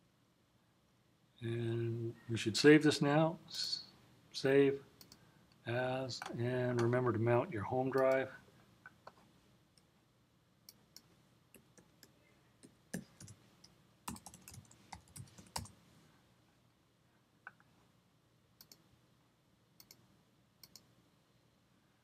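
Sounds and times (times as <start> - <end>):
keyboard keys tapping: 14.1 - 15.7
mouse clicks: 19.8 - 20.0, 20.6 - 20.9.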